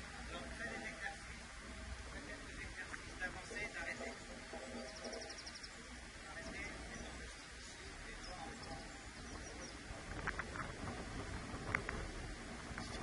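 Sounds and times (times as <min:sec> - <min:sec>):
faint bird chirps: 0:04.0 - 0:09.9.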